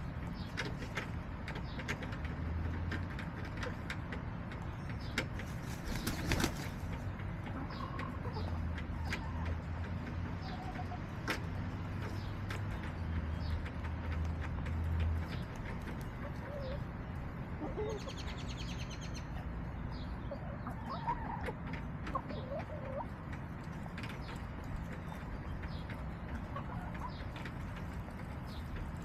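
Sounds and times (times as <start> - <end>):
sharp taps and clicks: 11.1 - 16.2
hens cooing and clucking: 15.9 - 18.3, 20.3 - 23.3.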